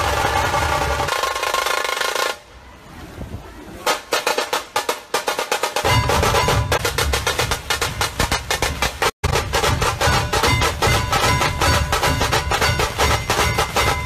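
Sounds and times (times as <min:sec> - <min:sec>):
fast drum roll: 0:00.0 - 0:02.4, 0:03.8 - 0:14.0
deep bass drum beats: 0:05.8 - 0:14.0.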